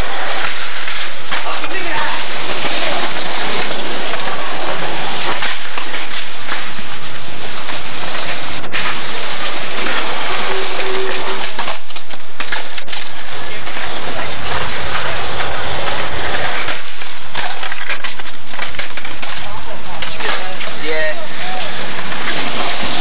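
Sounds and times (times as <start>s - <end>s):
skateboard wheels rolling on concrete: 2.0s - 19.4s.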